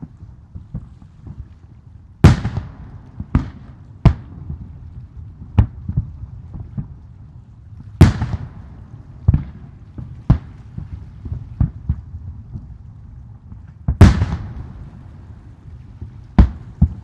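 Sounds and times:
low rumble: 0:00.0 - 0:17.0
fireworks booming: 0:02.2 - 0:04.8, 0:08.0 - 0:12.7, 0:13.5 - 0:17.0
fireworks popping: 0:13.5 - 0:15.0, 0:15.8 - 0:17.0.

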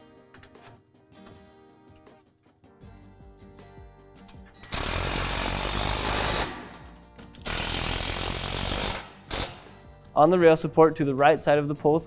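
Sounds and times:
cordless drill driving a screw: 0:04.6 - 0:06.7, 0:07.4 - 0:09.6.

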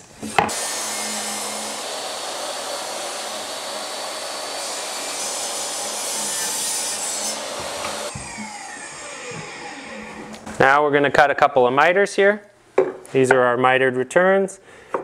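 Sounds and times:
table saw ripping board: 0:00.3 - 0:10.6
saw blade winding down whine: 0:00.5 - 0:10.4.

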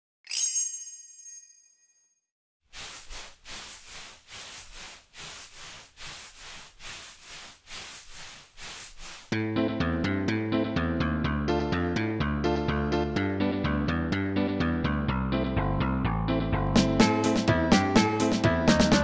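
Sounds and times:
electronic bell ding: 0:00.3 - 0:02.0.

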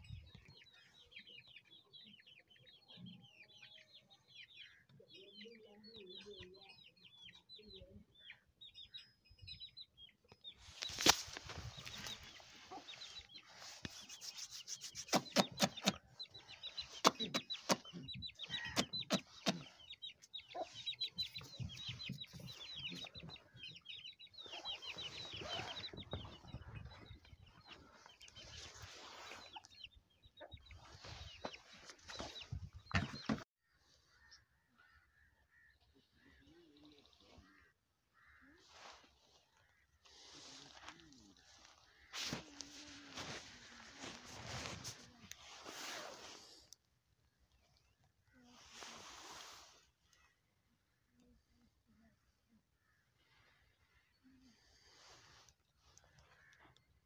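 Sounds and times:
fowl chirping and clucking: 0:00.0 - 0:33.4.

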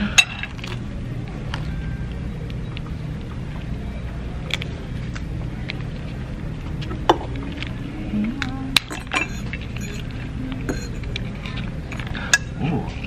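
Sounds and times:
steady low hum: 0:00.0 - 0:13.0
dishes and cutlery clinking: 0:08.4 - 0:12.6.

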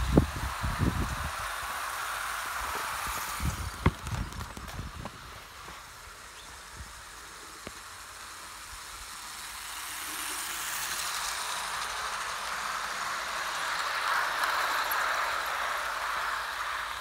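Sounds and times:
model train wheels on rails: 0:00.0 - 0:17.0.

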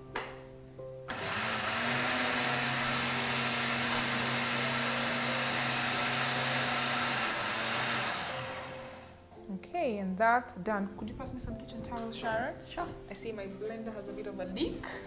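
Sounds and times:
blender running: 0:01.1 - 0:09.2.

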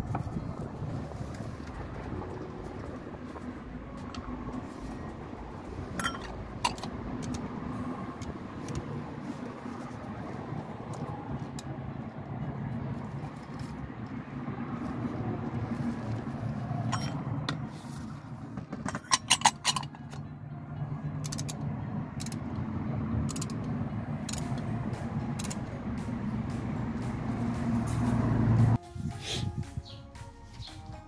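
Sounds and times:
ratcheting torque wrench clicks: 0:21.2 - 0:21.6, 0:22.2 - 0:22.5, 0:23.3 - 0:24.6, 0:25.4 - 0:25.6.

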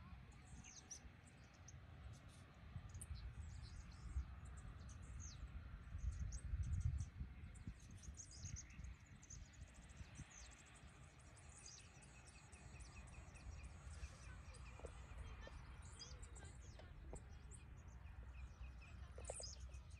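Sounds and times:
small birds chirping: 0:00.0 - 0:19.9
wind buffeting microphone: 0:02.6 - 0:11.8.

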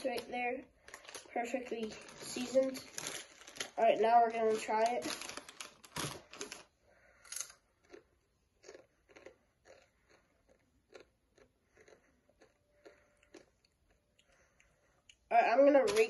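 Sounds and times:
potato chips crunching: 0:00.0 - 0:15.2.

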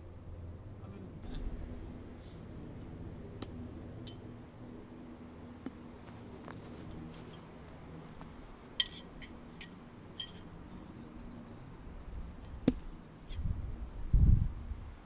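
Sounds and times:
metal knives clinking: 0:08.8 - 0:10.5.

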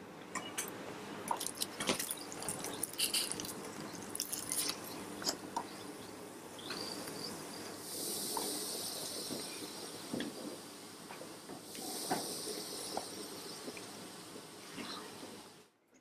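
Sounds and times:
tablet fizzing in water: 0:01.3 - 0:04.9.

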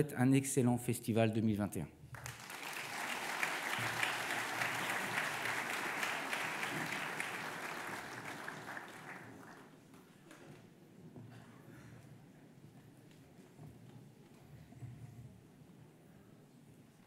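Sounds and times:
audience applauding: 0:02.1 - 0:09.8.

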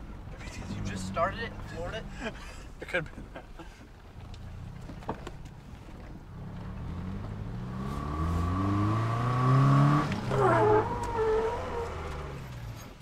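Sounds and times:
car engine accelerating: 0:00.0 - 0:13.0.

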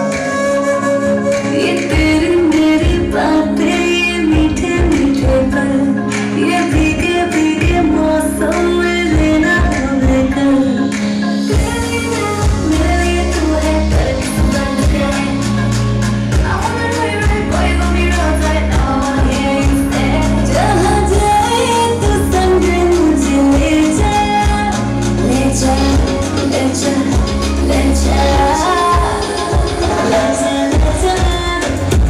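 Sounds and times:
pop song with singing: 0:00.0 - 0:32.0
heavy bass beat: 0:11.2 - 0:32.0.

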